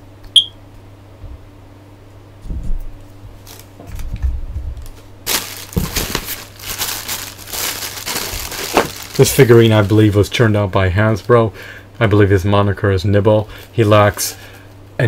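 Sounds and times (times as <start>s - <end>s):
plastic bag crinkling: 4.8s - 11.4s.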